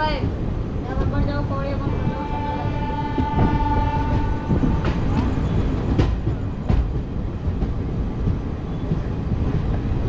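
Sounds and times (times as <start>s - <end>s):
moving train rumble: 0.0s - 10.0s
train horn: 1.8s - 5.1s.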